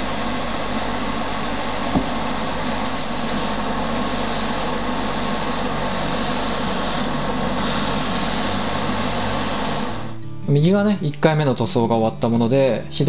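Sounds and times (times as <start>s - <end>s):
exhaust fan rushing: 0.0s - 10.2s
airbrush spraying hiss: 2.9s - 10.2s.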